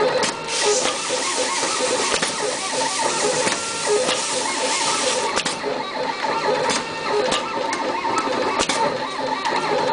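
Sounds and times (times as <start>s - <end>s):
cable stripping machine whirring: 0.0s - 9.9s
sharp machine clicks: 0.6s - 5.7s.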